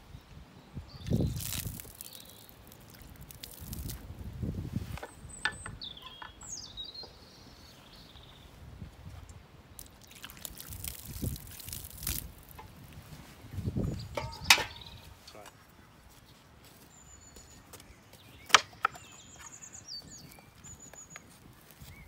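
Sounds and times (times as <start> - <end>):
liquid pouring and dripping: 1.2 - 4.0, 9.8 - 12.8.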